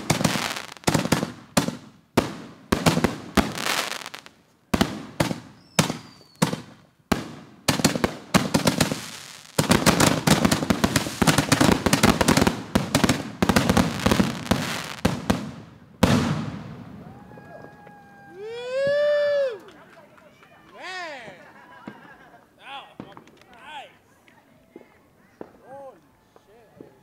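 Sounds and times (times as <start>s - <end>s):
fireworks bangs: 0.0s - 19.1s, 23.0s - 23.4s
fireworks crackling: 0.0s - 19.8s, 20.5s - 25.7s.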